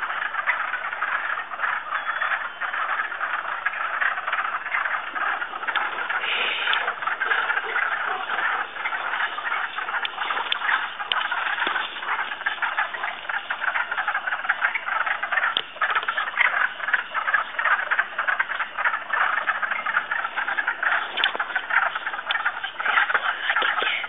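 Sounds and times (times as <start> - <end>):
frogs chorus: 0.0 - 24.0.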